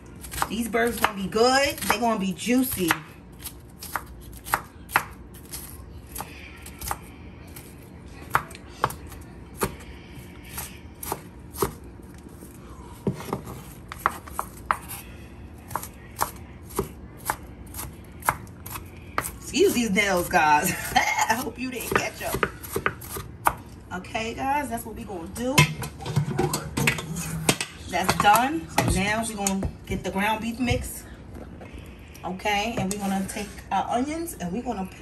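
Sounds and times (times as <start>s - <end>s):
knife chopping on wooden board: 13.0s - 15.0s, 21.8s - 23.6s.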